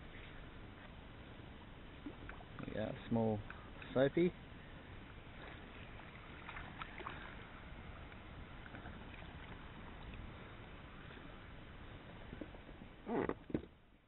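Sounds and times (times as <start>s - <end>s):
water splashing and lapping: 1.9s - 2.8s, 4.8s - 13.4s.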